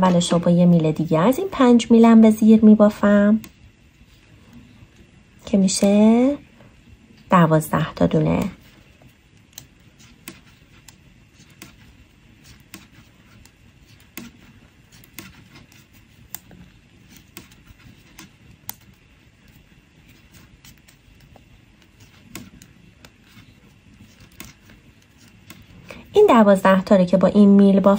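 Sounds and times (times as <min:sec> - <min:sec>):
knitting needles clicking: 0:03.4 - 0:03.6, 0:09.4 - 0:19.6.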